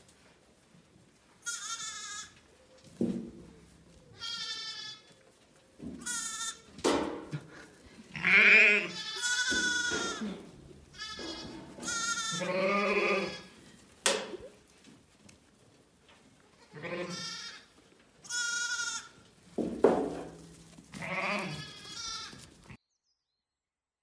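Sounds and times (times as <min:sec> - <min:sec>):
lambs bleating high-pitched: 0:01.4 - 0:02.4, 0:04.1 - 0:05.2, 0:06.0 - 0:06.7, 0:08.1 - 0:13.6, 0:16.6 - 0:19.2, 0:20.9 - 0:22.8
deeper sheep bleats: 0:08.2 - 0:10.4, 0:11.0 - 0:13.5, 0:16.7 - 0:17.6, 0:20.9 - 0:22.4.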